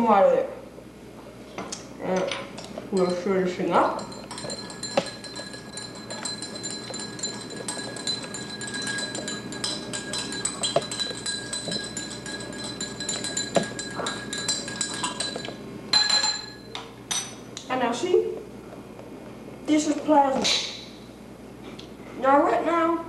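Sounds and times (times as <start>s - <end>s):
glass ringing faintly: 3.0s - 17.4s
spoon clinking in glass: 3.0s - 17.4s.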